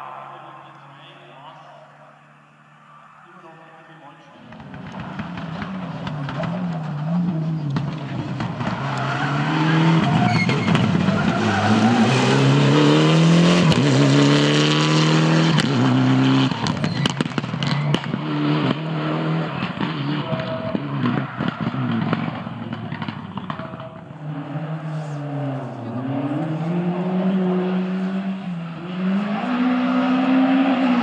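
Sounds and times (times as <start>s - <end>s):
rally car engine at full throttle: 4.4s - 31.0s
exhaust pops and cracks: 4.5s - 7.0s, 16.6s - 18.2s, 21.1s - 24.0s.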